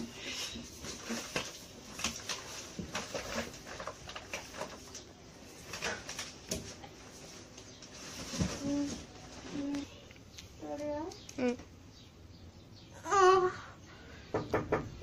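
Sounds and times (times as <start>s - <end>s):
scuffling and rustling on tiled floor: 0.0s - 10.0s.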